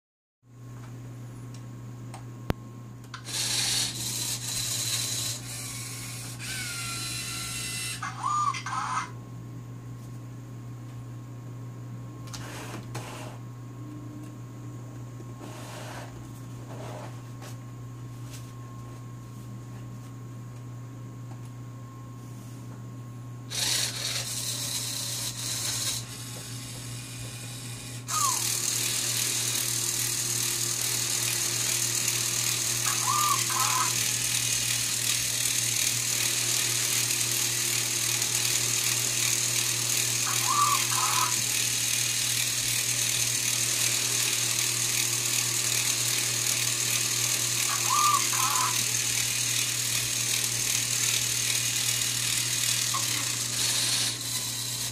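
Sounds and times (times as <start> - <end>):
servo motors and gears whirring: 3.2 - 8.8, 23.5 - 29.9, 30.8 - 34.6, 40.1 - 42.5, 47.6 - 49.5, 51.0 - 54.9
high-pitched motor whine: 3.2 - 9.2, 23.5 - 54.9.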